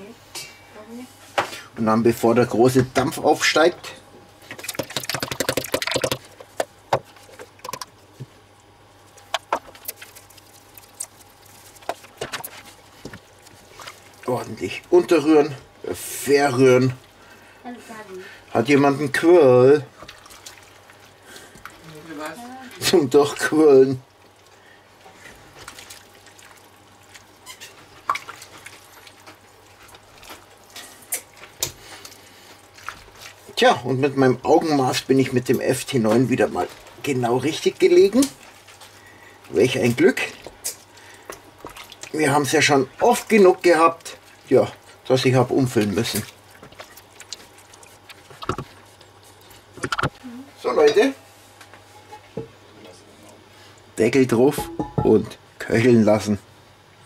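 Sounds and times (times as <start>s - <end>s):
faint steady hum: 0.0s - 57.0s
stew squelching and sloshing: 4.5s - 17.5s, 19.7s - 49.8s
spice shaker clicks and taps: 4.8s - 6.3s
spatula knocking on pot: 54.6s - 55.2s.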